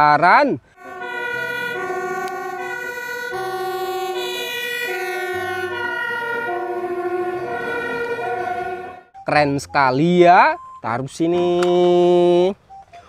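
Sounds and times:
fire engine two-tone siren: 0.7s - 10.9s.

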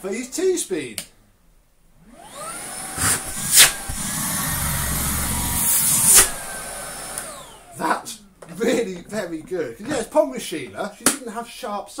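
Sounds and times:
vacuum cleaner motor whine: 2.0s - 7.9s.

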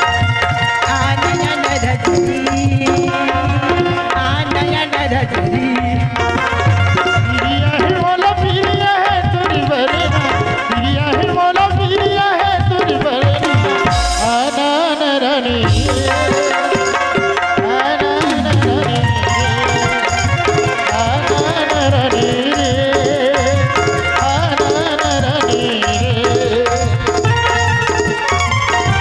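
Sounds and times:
hand drums beating: 0.0s - 29.0s
folk dance melody: 13.4s - 29.0s.

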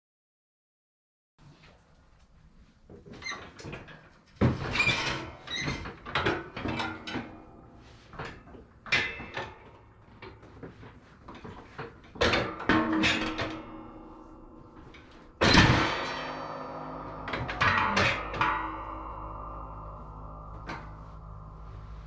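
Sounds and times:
metal clanking and scraping: 10.7s - 22.0s.

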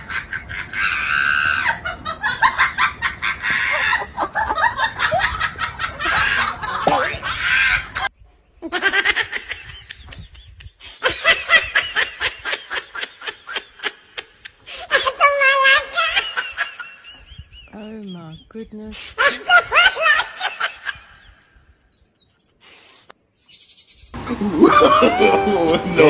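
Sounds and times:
people laughing in cackling bursts: 0.0s - 17.5s, 19.2s - 21.3s, 24.2s - 26.0s.

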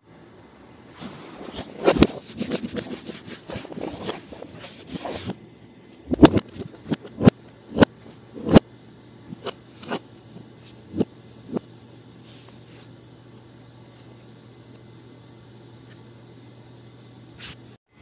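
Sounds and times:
rustling and scraping: 0.9s - 8.6s.

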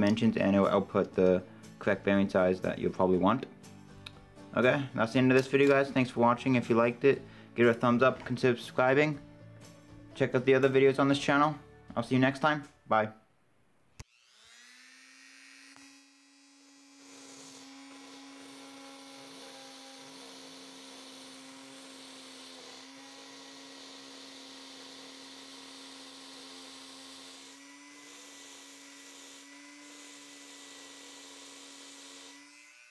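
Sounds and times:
electric drill spinning bearing: 14.0s - 32.9s.

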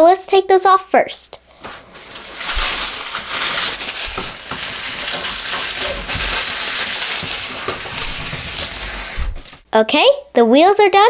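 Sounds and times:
plastic wrapping rustling: 1.5s - 9.7s.

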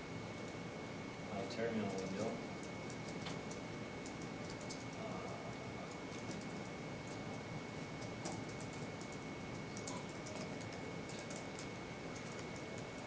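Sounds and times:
laptop keys typing: 1.8s - 7.4s, 8.0s - 13.0s.

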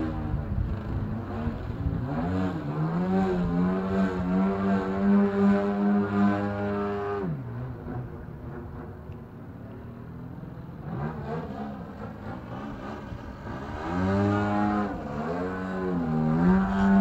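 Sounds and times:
model plane engine: 10.0s - 17.0s.

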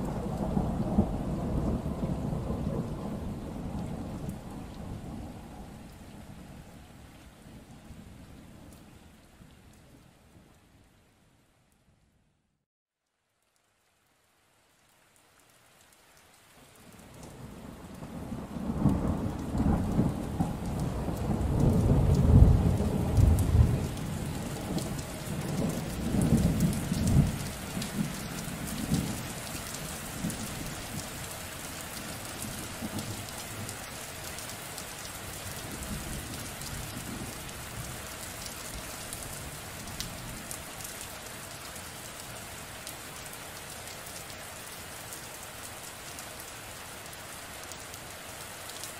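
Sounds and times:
rolling thunder rumble: 0.0s - 6.7s, 17.4s - 29.3s
rain hiss: 13.1s - 48.9s.

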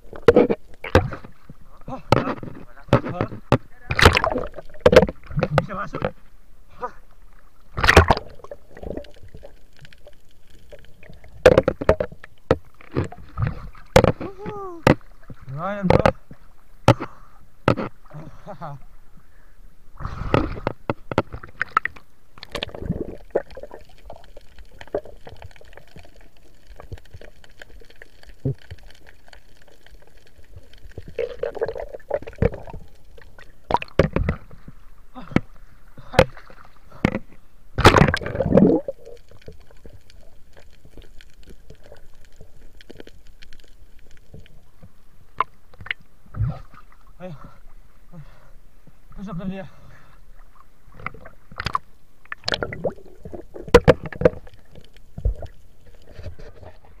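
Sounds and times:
water splashes: 0.0s - 19.0s, 20.0s - 57.0s
water sloshing and gurgling: 0.0s - 57.0s.

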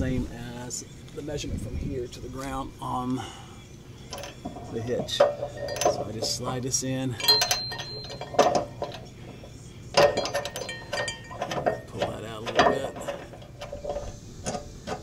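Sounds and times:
metal hitch parts clinking: 4.0s - 15.0s.

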